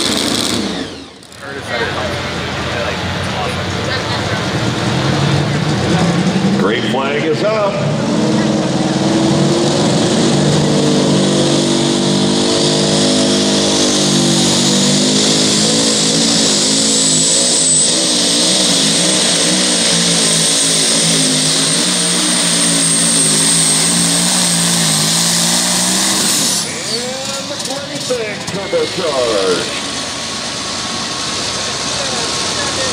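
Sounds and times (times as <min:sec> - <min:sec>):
truck engine at full throttle: 0:00.0 - 0:32.9
high whine: 0:11.8 - 0:32.9.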